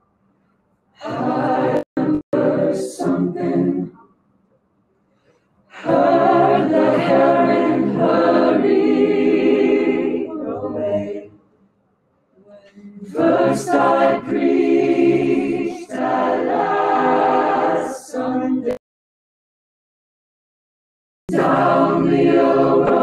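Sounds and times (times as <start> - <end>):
a cappella group singing in harmony: 1.0 - 4.0, 5.7 - 11.4, 12.6 - 18.8, 21.3 - 23.0.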